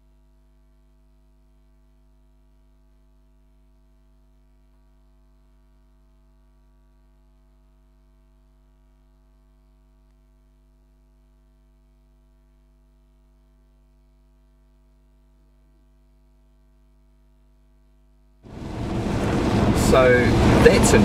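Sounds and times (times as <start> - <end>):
electrical mains hum: 7.4 - 21.0.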